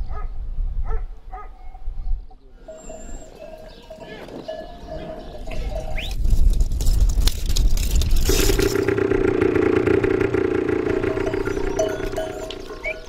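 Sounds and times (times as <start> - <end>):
motorcycle engine running: 7.8 - 13.0.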